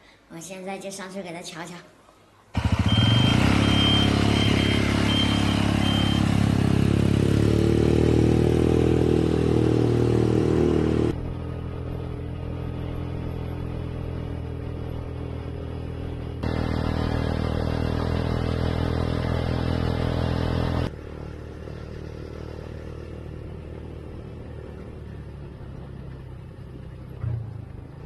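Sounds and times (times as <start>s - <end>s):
motorcycle engine riding by: 2.5s - 28.0s
high beeps: 2.9s - 6.3s.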